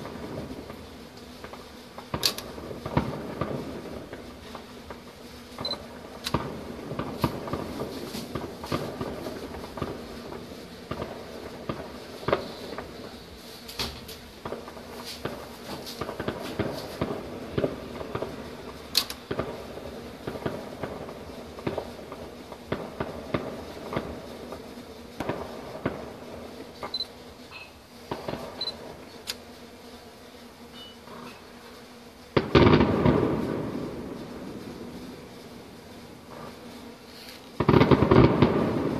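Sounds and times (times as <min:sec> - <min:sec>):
distant fireworks popping and crackling: 0:00.0 - 0:27.0, 0:28.1 - 0:29.2, 0:32.3 - 0:36.6, 0:37.3 - 0:38.9
loud firework bang: 0:32.4 - 0:33.9, 0:37.6 - 0:38.9.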